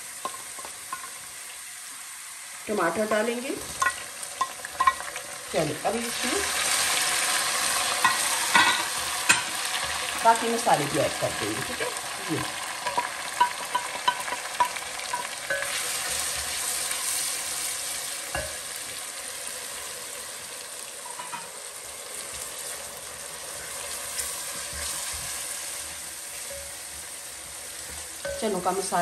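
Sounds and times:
masala sizzling in hot oil: 0:00.0 - 0:29.0.

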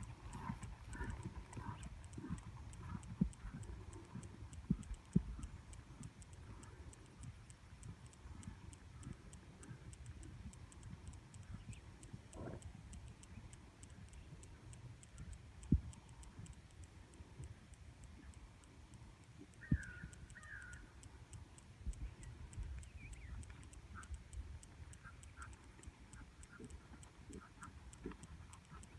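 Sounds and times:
fast high ticking: 0:00.0 - 0:28.9
bird calling: 0:19.5 - 0:21.0
bird chirps: 0:19.5 - 0:21.0, 0:22.0 - 0:24.2.

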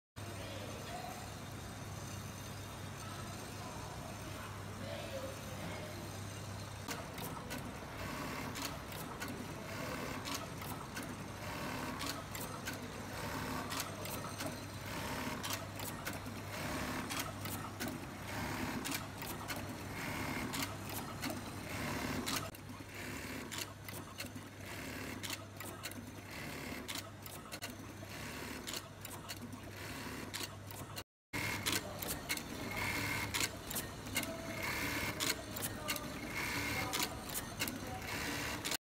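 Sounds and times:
sewing machine stitching: 0:06.8 - 0:38.8
feeder mechanism clicks and clatter: 0:08.3 - 0:22.6, 0:28.5 - 0:38.8.

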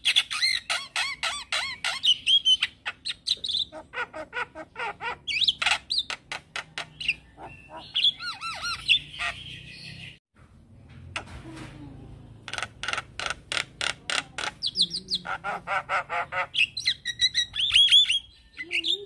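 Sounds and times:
bird rasping squawks: 0:00.0 - 0:09.6, 0:12.5 - 0:18.3.

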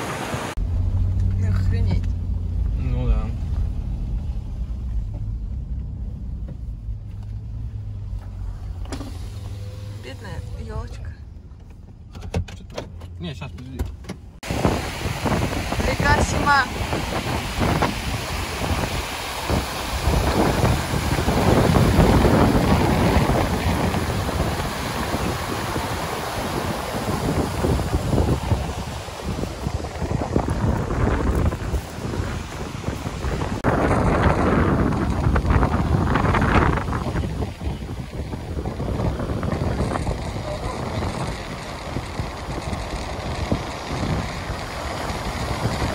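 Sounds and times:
river rushing over rocks: 0:00.0 - 0:00.6, 0:14.4 - 0:45.9
engine rumble inside cabin: 0:00.5 - 0:14.9
wind buffeting microphone: 0:14.4 - 0:45.9.

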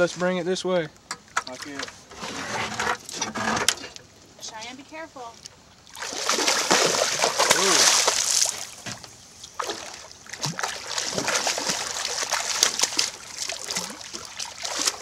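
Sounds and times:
fish splashing in water: 0:05.8 - 0:08.8, 0:09.5 - 0:15.0.

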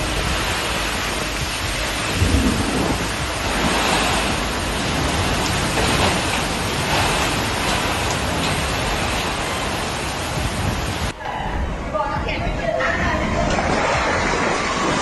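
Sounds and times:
heavy rain: 0:00.0 - 0:11.2, 0:12.2 - 0:15.0
gusting wind: 0:00.0 - 0:15.0.

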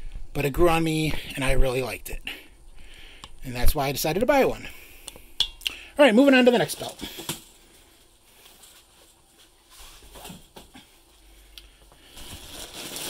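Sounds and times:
plastic wrapping crinkling: 0:12.0 - 0:13.0.

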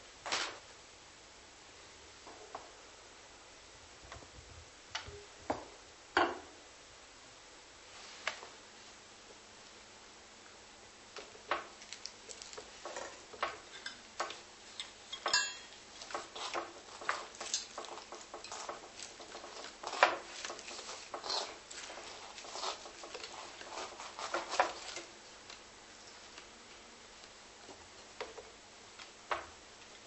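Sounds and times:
ringing clink: 0:15.3 - 0:15.7.

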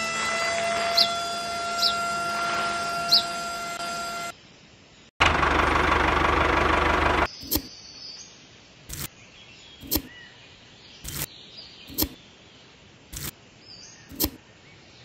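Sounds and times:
small electric motor whirring: 0:00.0 - 0:04.3.

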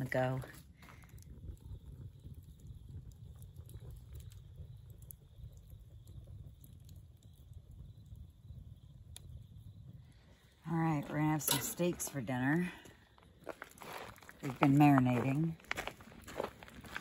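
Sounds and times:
steady low rumble: 0:00.0 - 0:13.6
wood fire crackling: 0:00.0 - 0:17.0.

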